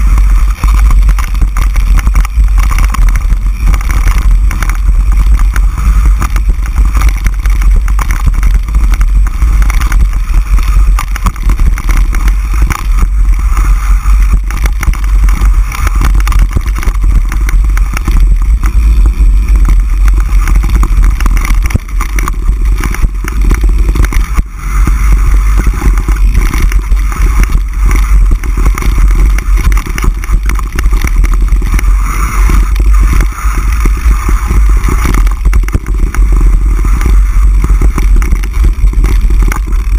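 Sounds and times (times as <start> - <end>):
bike knocks and rattles: 0.0 - 39.9
wind and ground rumble on microphone: 0.0 - 39.9.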